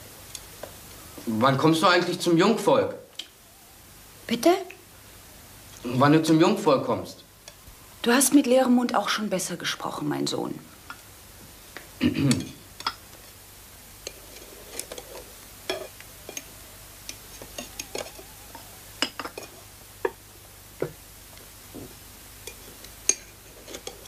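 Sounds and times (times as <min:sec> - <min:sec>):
cutlery clinking on plates: 0:14.1 - 0:16.5, 0:19.0 - 0:20.2, 0:22.5 - 0:24.0.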